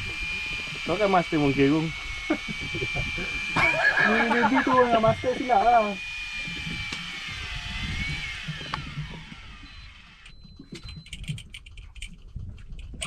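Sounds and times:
thin whine sliding down: 0.0s - 10.3s
wind: 0.0s - 13.0s
faint irregular clicks: 8.5s - 13.0s.

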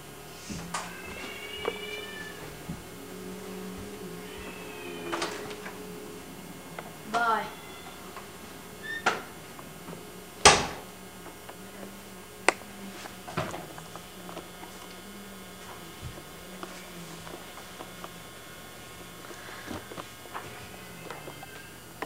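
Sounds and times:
steady electrical hum: 0.0s - 22.0s
wooden door banging shut: 10.4s - 10.8s.

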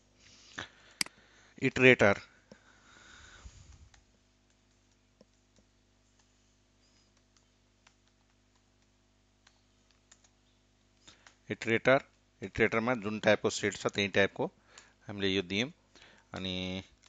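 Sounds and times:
faint steady hum: 0.0s - 17.0s
keyboard keystrokes: 7.2s - 10.4s.

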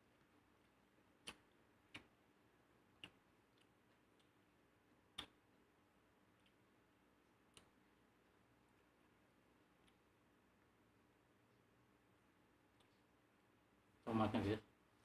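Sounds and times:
sharp eating clicks: 0.6s - 2.2s, 2.9s - 5.5s.

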